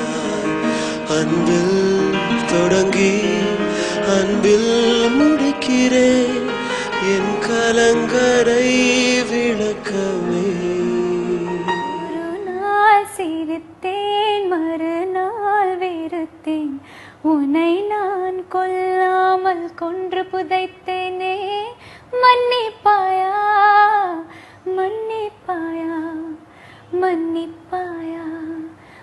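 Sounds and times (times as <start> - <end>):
man's voice with instrumental backing: 0.0 - 12.1
woman singing unaccompanied: 4.1 - 29.0.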